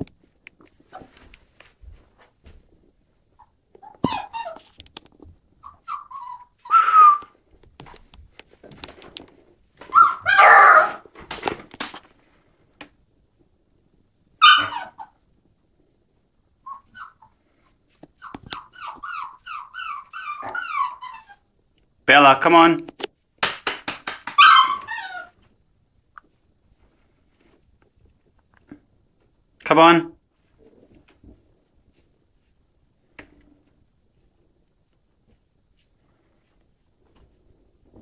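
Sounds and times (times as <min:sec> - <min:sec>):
puppy whimpering: 0:03.2 - 0:04.7, 0:05.6 - 0:07.4, 0:09.9 - 0:10.9, 0:14.4 - 0:15.2, 0:16.6 - 0:21.5, 0:24.1 - 0:25.4
puppy barking: 0:09.9 - 0:11.0, 0:14.4 - 0:15.2, 0:24.1 - 0:25.3.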